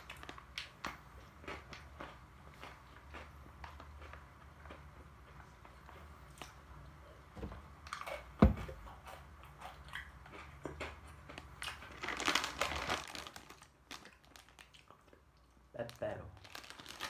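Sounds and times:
plastic wrapper crinkling: 11.7s - 15.0s, 15.8s - 17.0s.

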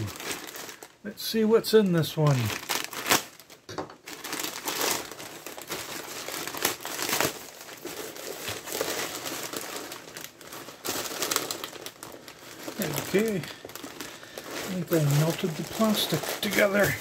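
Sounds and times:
plastic bag crinkling and tearing: 0.0s - 17.0s.

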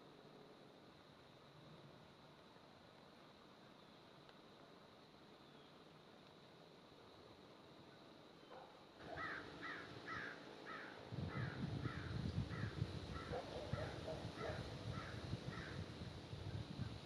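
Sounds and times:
crow cawing: 9.2s - 13.3s.

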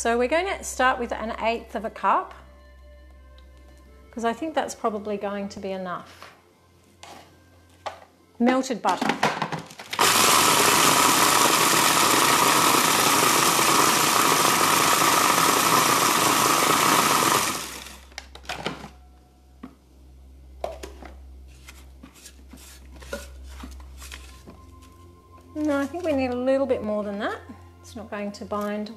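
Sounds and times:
food processor motor whine: 9.9s - 18.3s.

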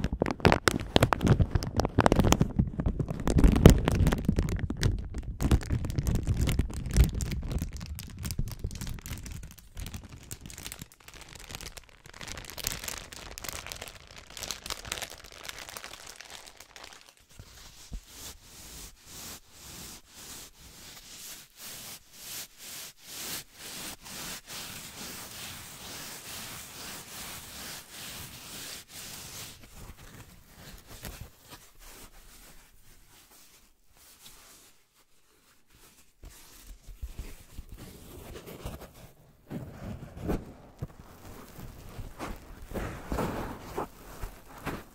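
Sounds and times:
plastic bag crinkling: 0.0s - 17.4s, 40.2s - 44.9s
paper sheets crinkling: 0.0s - 18.0s, 39.5s - 44.9s.

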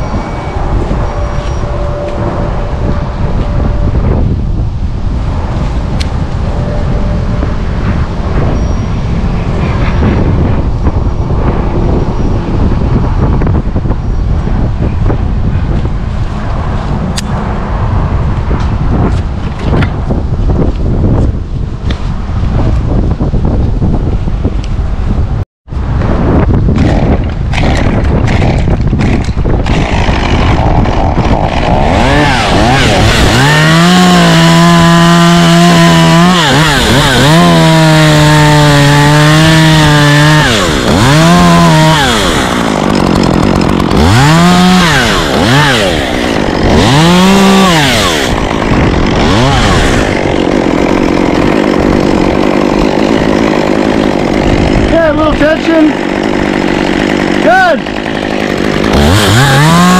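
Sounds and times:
wind buffeting microphone: 0.0s - 59.9s
chainsaw revving: 26.7s - 59.9s.

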